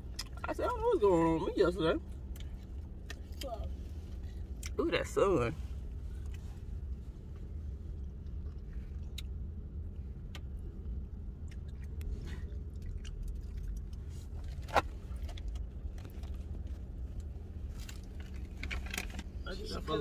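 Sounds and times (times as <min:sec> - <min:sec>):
vehicle engine idling: 0:00.0 - 0:20.0
small clicks and rustles: 0:12.8 - 0:19.4.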